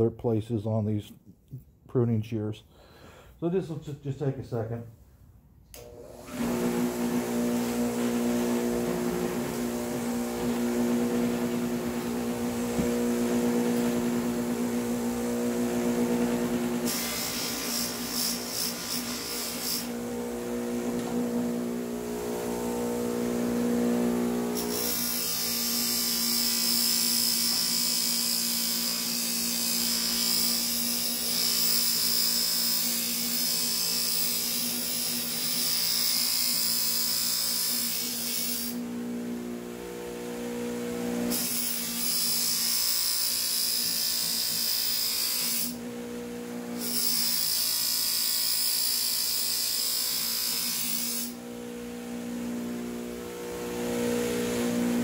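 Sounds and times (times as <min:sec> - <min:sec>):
bench buffer motor running: 0:05.8 - 0:36.7.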